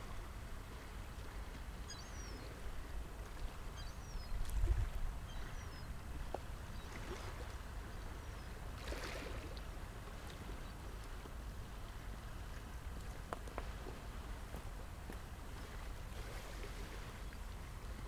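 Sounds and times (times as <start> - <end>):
soft water splashes: 0.0 - 18.0
wind rumble on microphone: 0.0 - 18.0
small waves lapping on rocks: 6.2 - 18.0.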